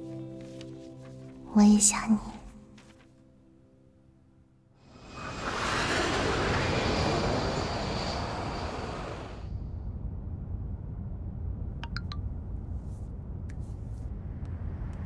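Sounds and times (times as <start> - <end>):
jet airliner roar: 4.9 - 9.5.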